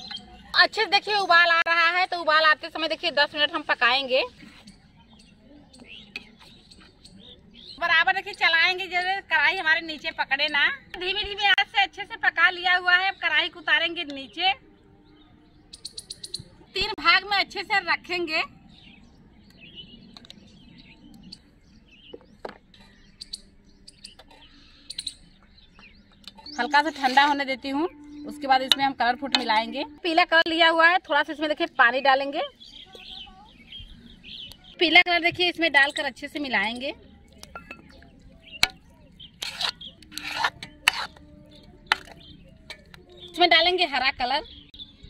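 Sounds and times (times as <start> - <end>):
birds chirping: 0.0 - 45.0
metal spoon tapping steel bowls: 28.0 - 29.9, 40.1 - 43.4
spoon rasping scrapes: 38.6 - 41.2.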